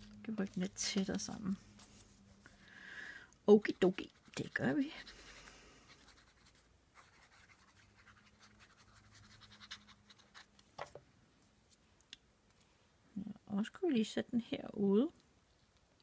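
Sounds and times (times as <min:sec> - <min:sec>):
paper rustling and scraping: 0:00.0 - 0:02.6.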